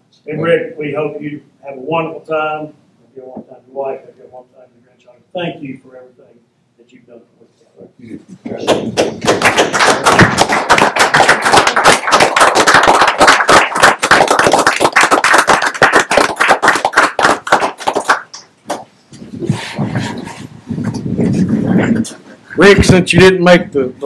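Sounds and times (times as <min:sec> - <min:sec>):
people applauding: 0:08.5 - 0:18.9.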